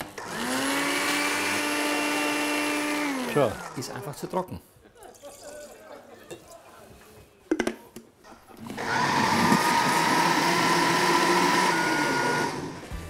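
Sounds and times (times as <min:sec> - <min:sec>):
blender motor whining: 0:00.0 - 0:04.0, 0:08.6 - 0:13.0.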